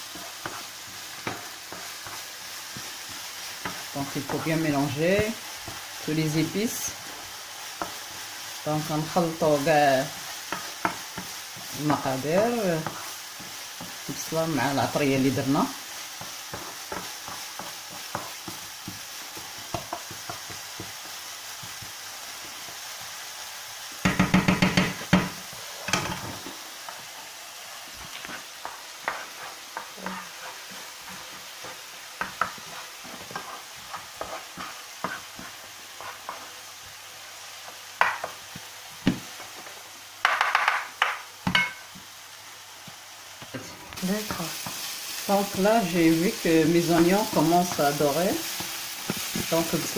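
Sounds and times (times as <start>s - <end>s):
wooden spoon scraping pan: 0.0s - 5.8s, 28.0s - 36.6s
onions frying in oil: 0.0s - 49.9s.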